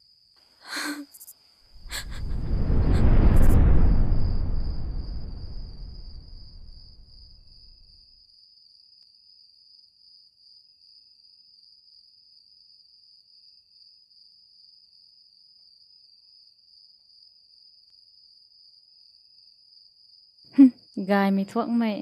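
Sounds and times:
crickets chirring: 0.0 - 22.0
low rumble: 1.8 - 7.9.

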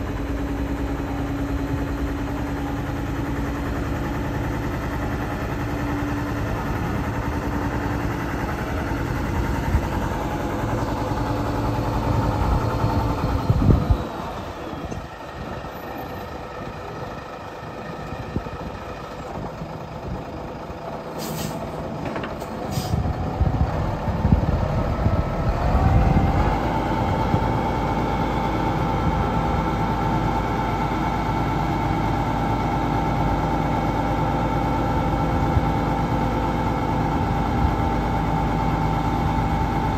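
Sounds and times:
diesel truck engine running: 0.0 - 39.9
air brake hiss: 21.2 - 21.8, 22.6 - 23.0.

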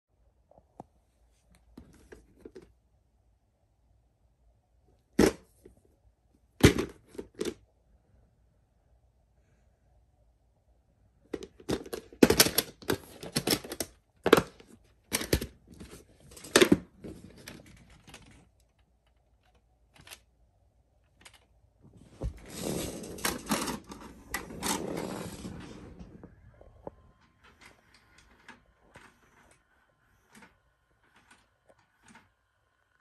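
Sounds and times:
plastic cassette clicks and clacks: 11.4 - 20.3, 21.1 - 21.5
vcr mechanism whirring: 22.4 - 26.3, 26.9 - 33.0.

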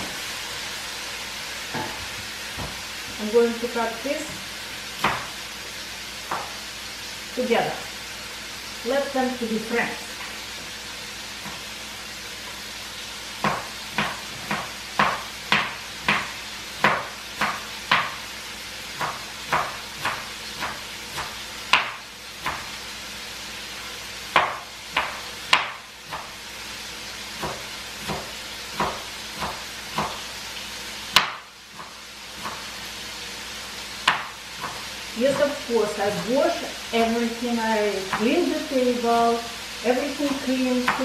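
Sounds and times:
knife chopping herbs on board: 5.0 - 5.4, 6.3 - 6.6, 13.4 - 18.2, 19.0 - 22.8, 24.3 - 26.3, 27.4 - 30.2, 31.1 - 32.8, 34.0 - 35.6, 40.3 - 41.0.

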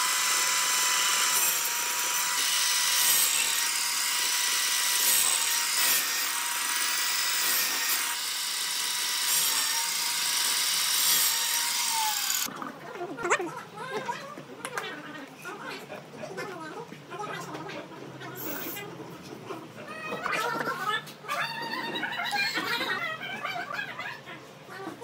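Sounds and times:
power tool whining on wood: 0.0 - 12.5.

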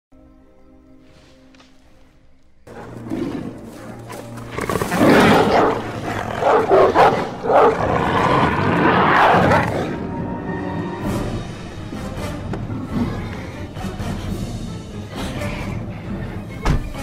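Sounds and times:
film score music: 0.1 - 17.0
animal snarls and roars: 2.7 - 10.2, 12.6 - 14.1.

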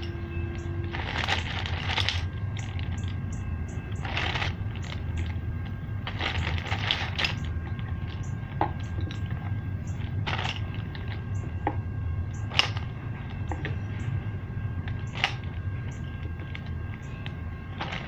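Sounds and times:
steady low hum: 0.0 - 18.0
plastic bag crinkling: 0.8 - 11.6, 14.9 - 18.0.

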